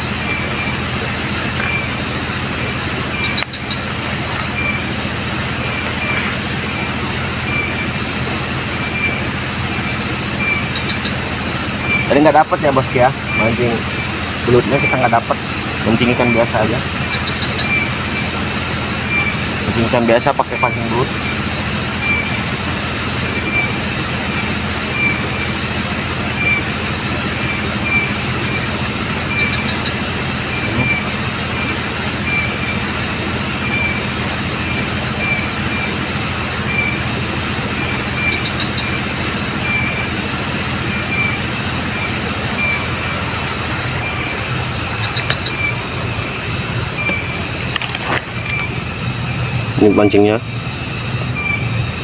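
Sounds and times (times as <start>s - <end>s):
low steady hum: 0.0s - 52.0s
shrill insect chorus: 0.0s - 52.0s
triple ticks: 3.2s - 4.8s, 44.9s - 45.8s
short insect chirp: 33.6s - 52.0s.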